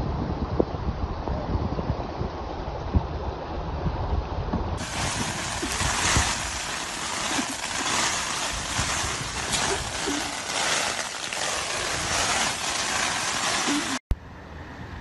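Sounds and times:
heavy rain pouring: 4.8 - 14.0.

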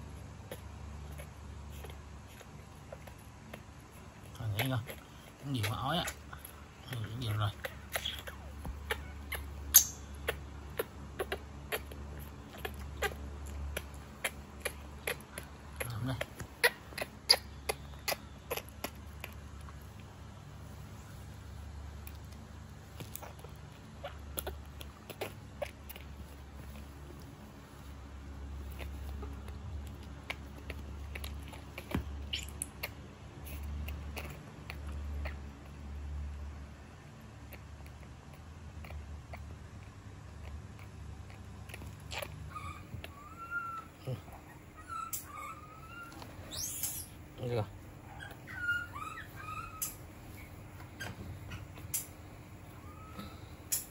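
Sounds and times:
baby monkey clicks and squeaks: 0.0 - 20.1, 21.1 - 36.6, 37.3 - 53.9.

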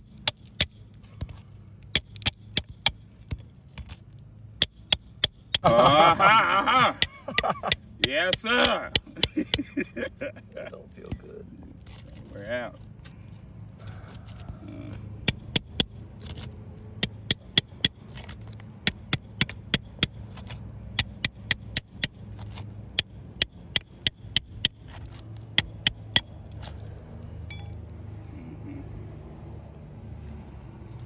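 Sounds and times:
hammer tapping metal pry bar: 0.0 - 4.0, 4.6 - 6.0, 6.7 - 9.8, 15.2 - 26.4, 27.5 - 27.8.

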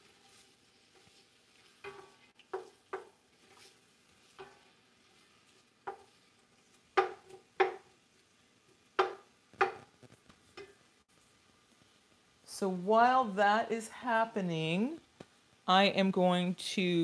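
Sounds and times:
wooden spatula scraping saucepan: 0.0 - 10.8
onions sizzling: 0.0 - 17.0.

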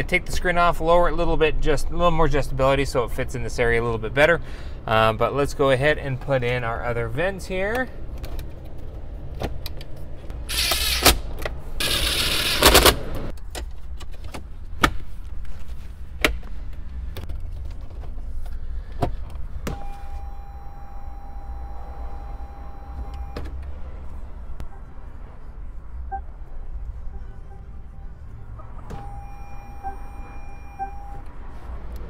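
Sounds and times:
steady electronic tone: 19.8 - 23.4, 28.6 - 31.3.

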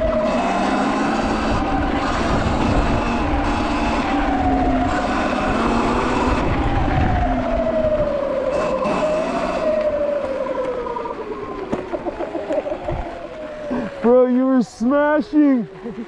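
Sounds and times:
electric dirt bike motor whining: 0.0 - 7.2, 8.0 - 10.8
wind noise: 0.0 - 14.0.

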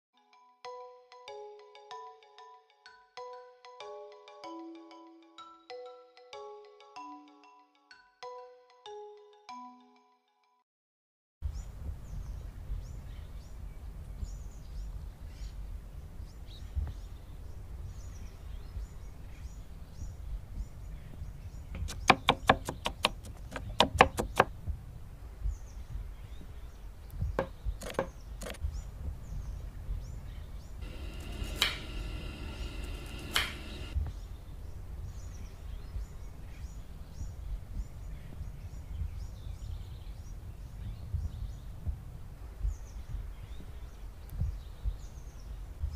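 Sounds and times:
bird chirps: 20.8 - 24.4, 25.5 - 34.4
knife chopping on wooden board: 21.8 - 24.5, 27.4 - 28.6.

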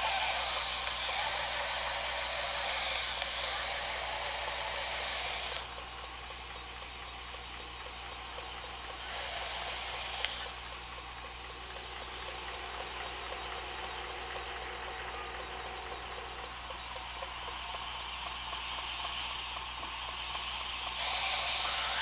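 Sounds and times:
blade hissing on belt: 0.0 - 5.7, 9.0 - 10.5, 21.0 - 22.0
belt grinder running: 0.0 - 6.0, 8.4 - 10.7, 18.6 - 22.0
sharp click: 9.5 - 10.6.

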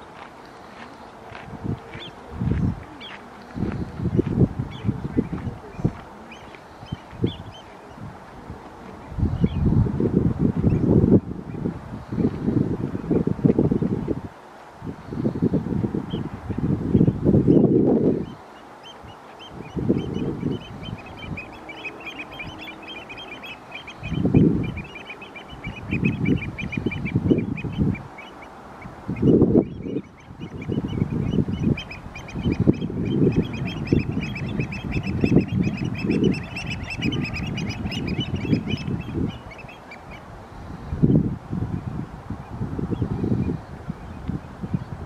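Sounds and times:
flock of birds chattering: 0.0 - 9.7, 15.0 - 41.2
wind rumbling over microphone: 0.0 - 45.0.

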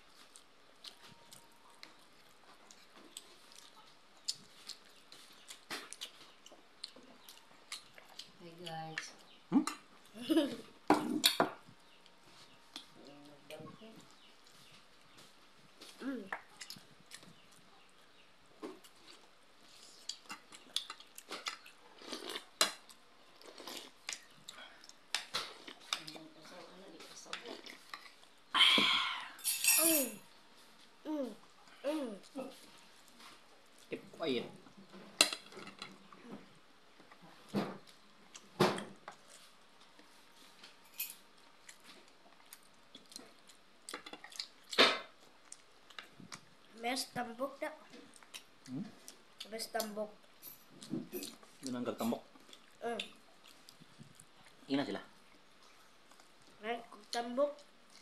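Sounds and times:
chewing and lip smacking: 41.6 - 46.5.

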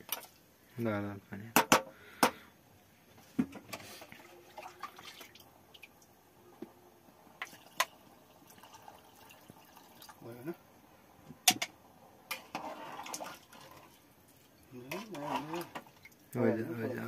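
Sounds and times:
water pouring into pot: 4.2 - 5.8, 7.4 - 10.5, 12.3 - 16.4.

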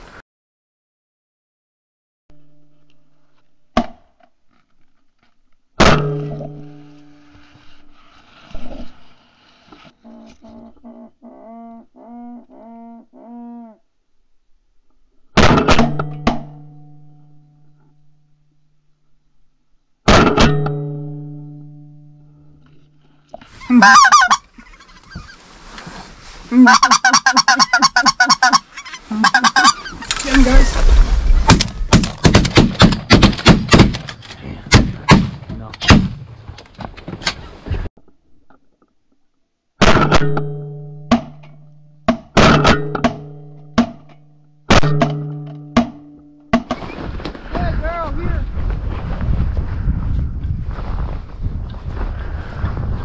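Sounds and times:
pulsed goose call: 10.0 - 13.8, 23.6 - 25.4, 26.5 - 30.6
geese honking: 23.6 - 25.5, 26.5 - 30.8
shotgun blasts: 31.3 - 36.3.

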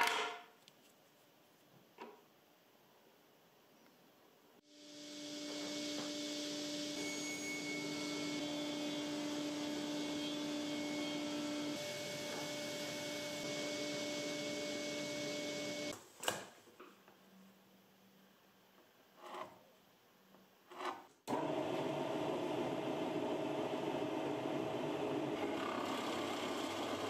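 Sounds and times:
panel saw humming and whining: 4.7 - 15.9.

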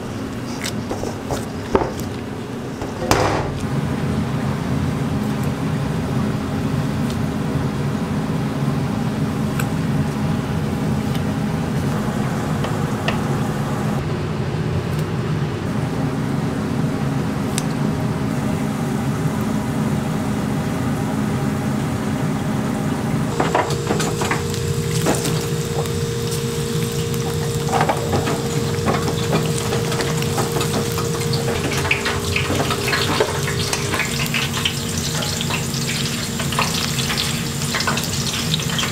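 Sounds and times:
kitchen hum: 0.0 - 38.9
oil bubbling and sizzling: 15.7 - 38.9.

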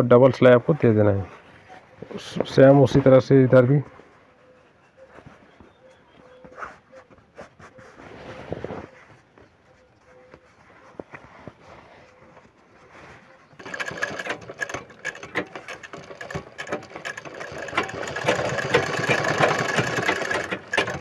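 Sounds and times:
sewing machine stitching: 13.6 - 21.0.

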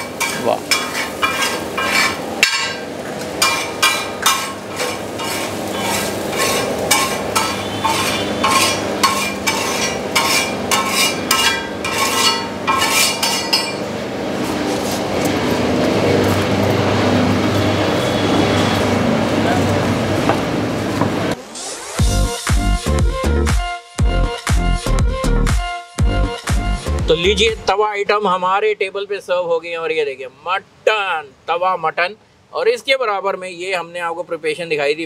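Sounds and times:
metal spatula scraping on iron pan: 0.0 - 13.9
steady background noise: 0.0 - 22.1, 27.4 - 35.0.

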